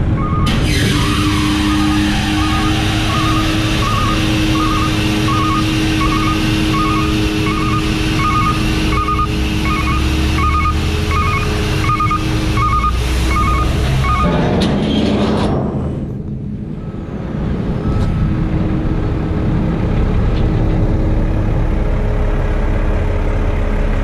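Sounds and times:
warning alarm beeping: 0:00.0 - 0:14.4
hydraulic pump whine: 0:00.0 - 0:14.7
diesel engine running: 0:00.0 - 0:24.0.

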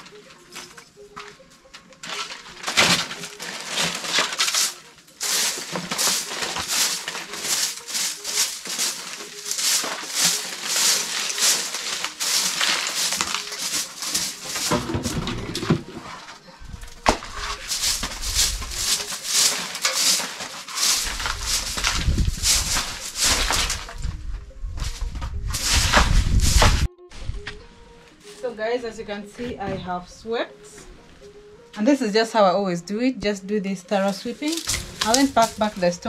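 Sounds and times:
broom sweeping earth floor: 0:02.1 - 0:16.4, 0:17.0 - 0:24.1, 0:24.8 - 0:26.9, 0:34.2 - 0:36.0.

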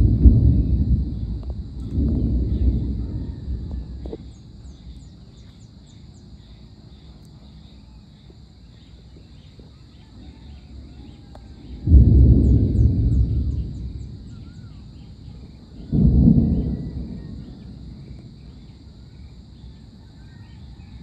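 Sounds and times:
loud thunder peal: 0:00.0 - 0:05.0, 0:11.6 - 0:18.7
distant thunder rumbling: 0:00.0 - 0:05.6, 0:10.2 - 0:20.0
steady high hiss: 0:00.0 - 0:21.0
small bird chirps: 0:12.4 - 0:18.8.

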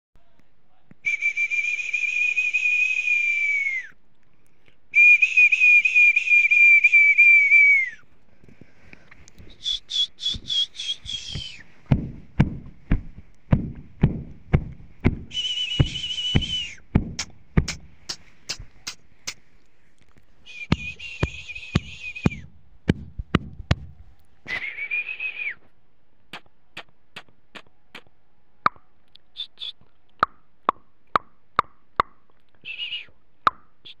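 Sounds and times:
whistle blasts: 0:01.0 - 0:03.9, 0:05.0 - 0:08.0, 0:09.5 - 0:11.7, 0:15.3 - 0:16.9, 0:20.4 - 0:22.5, 0:24.5 - 0:25.7, 0:32.7 - 0:33.1
short whistle chirps: 0:01.0 - 0:04.0, 0:05.0 - 0:08.0, 0:09.4 - 0:11.7, 0:15.3 - 0:16.8, 0:20.4 - 0:22.5, 0:24.5 - 0:25.7, 0:32.6 - 0:33.2
low thumps: 0:10.2 - 0:19.4, 0:20.7 - 0:24.2
sharp clicks: 0:15.8 - 0:19.4.

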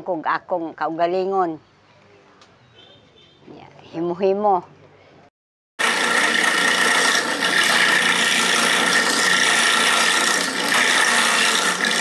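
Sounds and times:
motorized grater rasping coconut: 0:05.8 - 0:12.0.

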